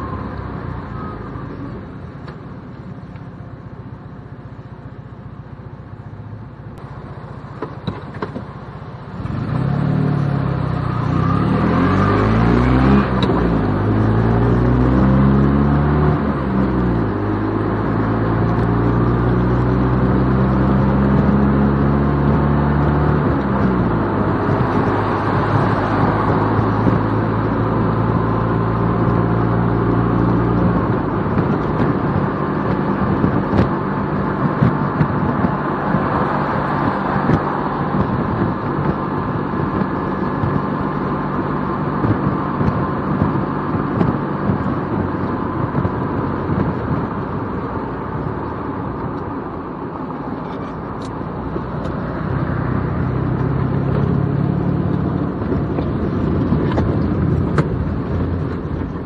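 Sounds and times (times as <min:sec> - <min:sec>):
car engine accelerating through gears: 0:07.8 - 0:59.0.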